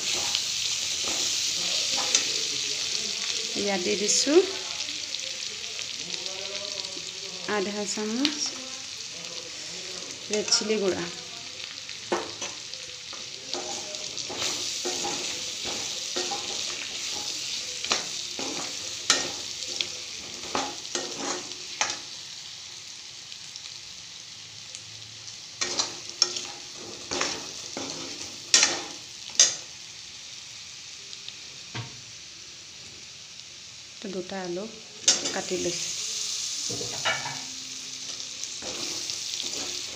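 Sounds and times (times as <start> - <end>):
steel spoon scraping a wok: 0.0 - 2.4, 13.5 - 22.0, 25.6 - 29.6, 36.7 - 37.5, 38.6 - 39.9
pork and potatoes sizzling: 0.0 - 39.9.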